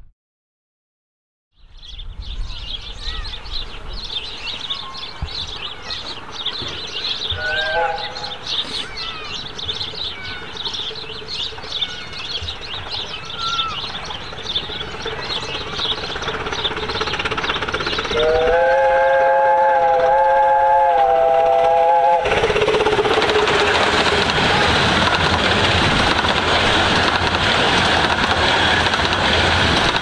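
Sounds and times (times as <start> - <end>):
birds chirping: 1.6 - 19.8
approaching train: 1.7 - 30.0
steam locomotive chime whistle: 7.3 - 8.5, 18.0 - 23.6.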